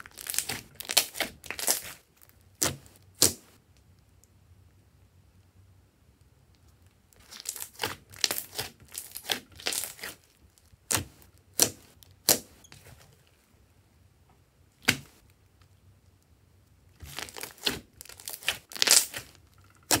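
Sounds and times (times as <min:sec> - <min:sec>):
slime popping: 0:00.0 - 0:02.0, 0:17.0 - 0:20.0
slime squelching: 0:00.0 - 0:03.6, 0:07.2 - 0:13.1, 0:17.0 - 0:20.0.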